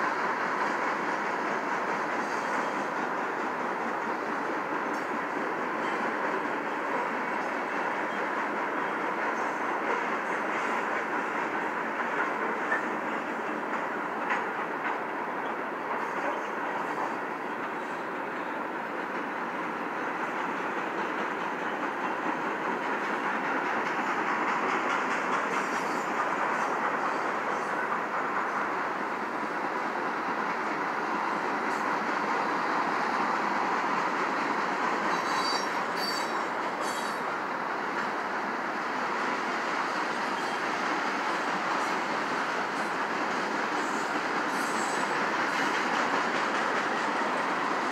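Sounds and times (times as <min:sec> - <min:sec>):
train wheels on rail: 0:00.0 - 0:47.9
high-pitched wheel squeals: 0:35.1 - 0:37.2.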